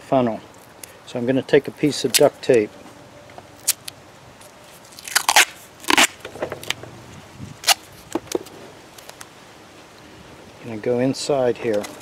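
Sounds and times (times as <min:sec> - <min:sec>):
duct tape ripping: 0:02.0 - 0:02.4, 0:03.6 - 0:06.8, 0:07.5 - 0:09.3.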